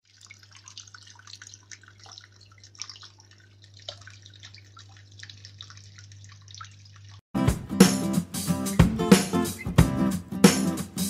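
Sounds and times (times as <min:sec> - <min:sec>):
fountain water trickling: 0:00.0 - 0:07.2.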